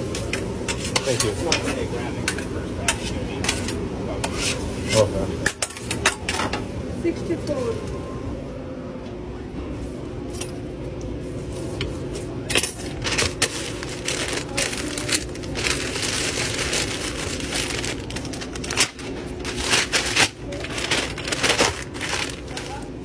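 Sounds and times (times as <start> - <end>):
steady low hum: 0.0 - 23.0
wrap paper rustling and crinkling: 12.9 - 23.0.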